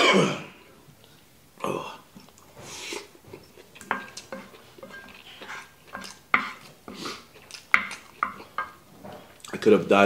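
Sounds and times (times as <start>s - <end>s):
wooden spoon scraping frying pan: 2.6s - 9.8s.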